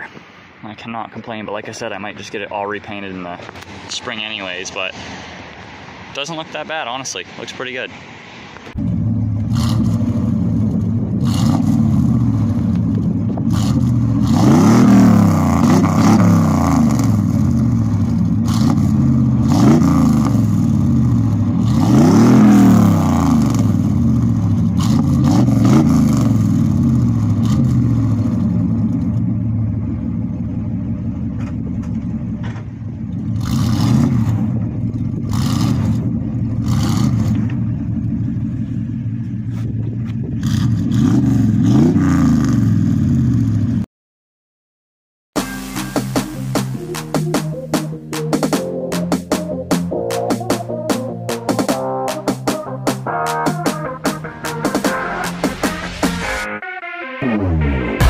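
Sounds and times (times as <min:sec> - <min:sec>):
pickup engine revving and idling: 0:08.6 - 0:43.8.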